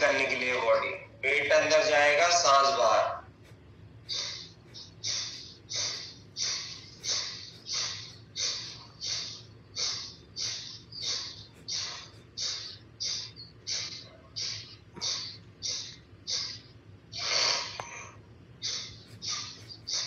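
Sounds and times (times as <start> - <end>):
forceful nasal exhalations: 17.2 - 18.1.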